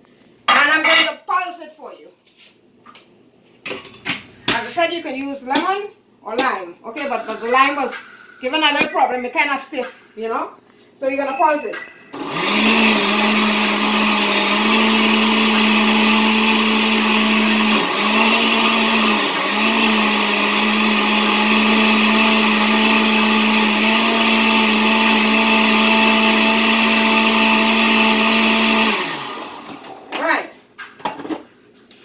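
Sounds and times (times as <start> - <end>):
blender motor whirring: 12.2 - 30.1.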